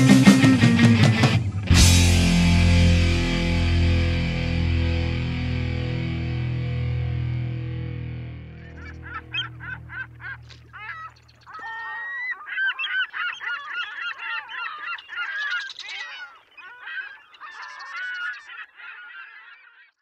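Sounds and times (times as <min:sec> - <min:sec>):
flock of birds calling: 0:08.5 - 0:20.0.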